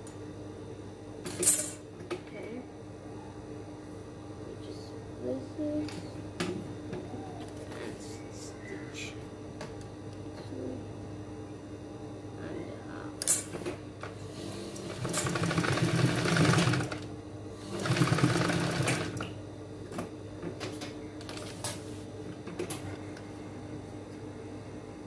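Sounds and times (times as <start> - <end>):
industrial sewing machine stitching: 14.4 - 19.2.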